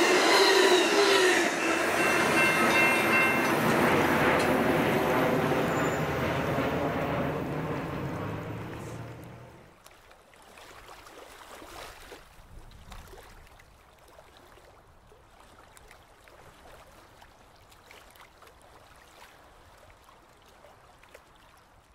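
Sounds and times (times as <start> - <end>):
water lapping and bubbling: 8.7 - 21.9.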